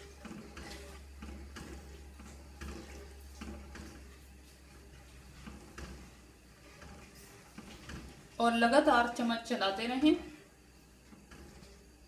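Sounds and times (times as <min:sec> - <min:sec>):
spatula stirring liquid in a pan: 0:00.0 - 0:08.5, 0:10.4 - 0:12.0.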